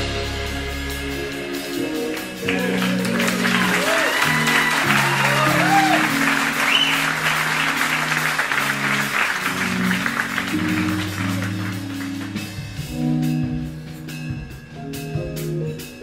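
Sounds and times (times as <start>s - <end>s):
jazz fusion band playing: 0.0s - 16.0s
audience applause: 2.0s - 12.9s.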